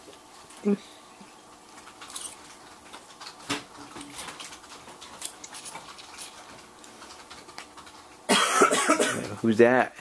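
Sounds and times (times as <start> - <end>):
toddlers eating from plastic tub: 0.0 - 8.3.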